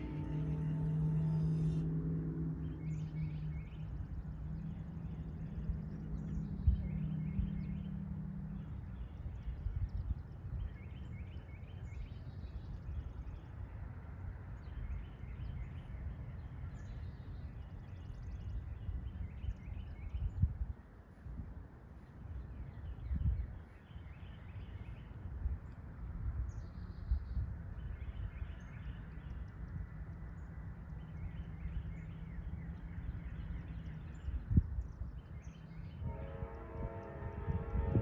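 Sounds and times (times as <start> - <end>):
distant train horn: 0.0 - 3.8, 35.8 - 38.0
low rumble: 0.0 - 10.8
songbirds chirping: 0.0 - 38.0.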